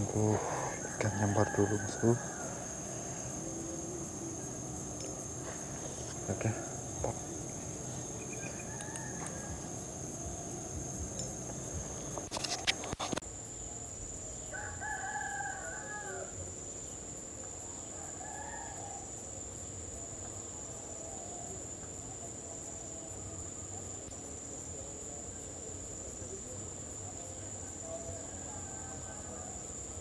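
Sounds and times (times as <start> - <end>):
rooster crowing: 0.0 - 11.9, 14.5 - 16.4, 17.9 - 19.2, 27.8 - 30.0
high-pitched insect trill: 0.0 - 30.0.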